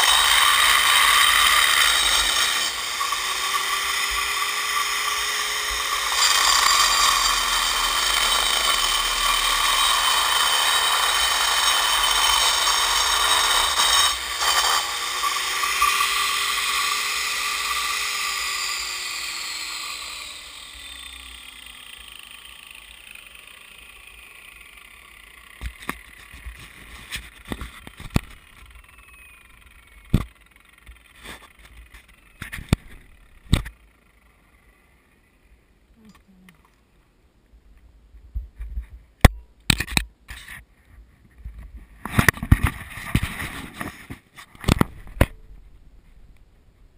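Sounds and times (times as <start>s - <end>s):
angle grinder cutting stone: 0.0s - 33.8s
sharp clicks and knocks: 25.6s - 28.8s, 30.1s - 33.8s, 38.4s - 40.6s, 41.4s - 45.4s.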